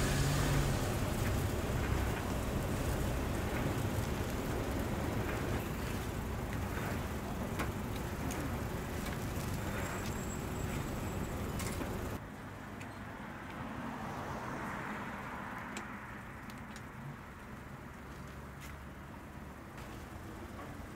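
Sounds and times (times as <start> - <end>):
steady rumbling background: 0.0 - 12.2.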